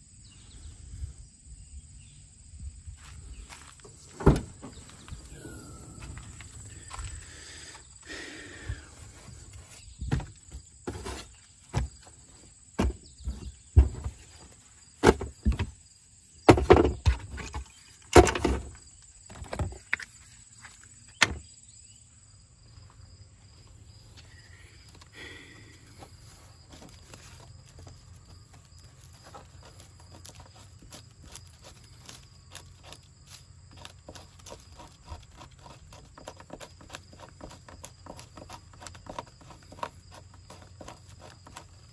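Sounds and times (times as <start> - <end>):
tools knocking and clunking: 3.8 - 4.8, 12.8 - 14.2, 16.5 - 20.1.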